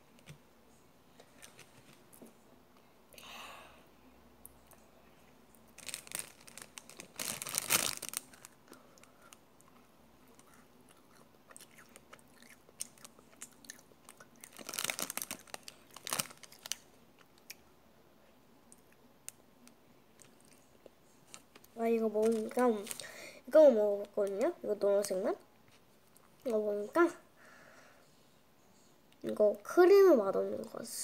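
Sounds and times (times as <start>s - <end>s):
macaron crunching: 5.8s - 8.6s, 9.6s - 17.6s.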